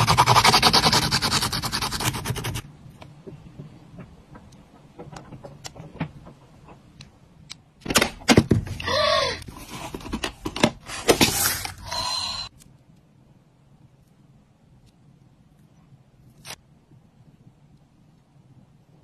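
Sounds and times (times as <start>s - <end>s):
plastic crinkling and scraping: 9.5s - 11.9s.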